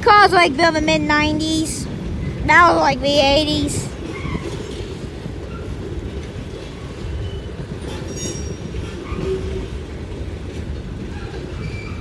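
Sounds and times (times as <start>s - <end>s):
train wheels rumbling on rail: 0.0s - 12.0s
faint wheel squeal: 7.0s - 9.8s, 11.1s - 12.0s.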